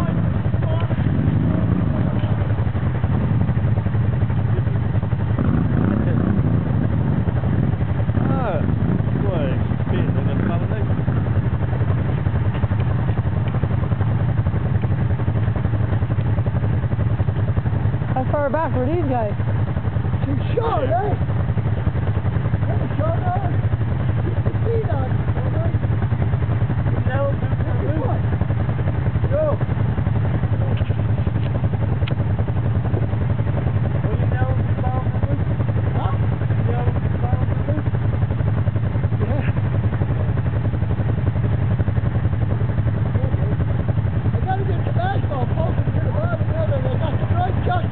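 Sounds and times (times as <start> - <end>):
quad engine running: 0.0 - 47.9.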